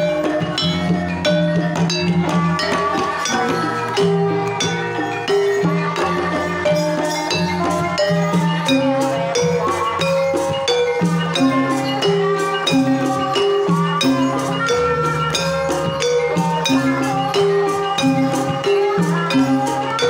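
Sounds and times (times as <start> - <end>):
woman singing into microphone: 0.0 - 10.0
metallophones and gongs ringing: 0.0 - 20.0.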